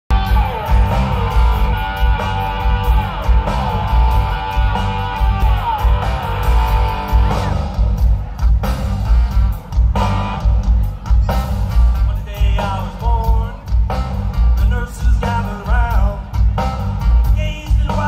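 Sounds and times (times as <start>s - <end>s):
heavy bass and drum beat: 0.0s - 18.0s
electric guitar gliding notes: 0.1s - 12.1s.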